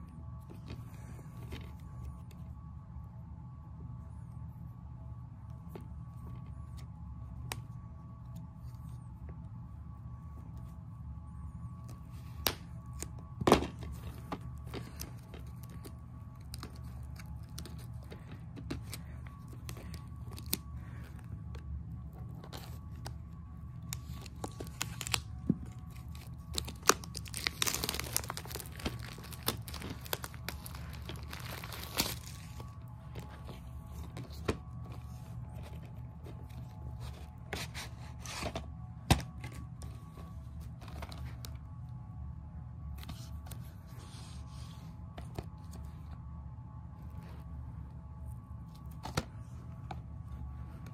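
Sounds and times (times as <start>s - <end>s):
steady low hum: 0.0s - 50.9s
shrink wrap crinkling and tearing: 12.0s - 38.5s.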